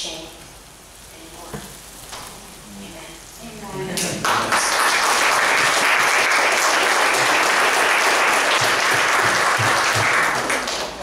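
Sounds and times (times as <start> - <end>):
congregation applauding: 4.2 - 11.0.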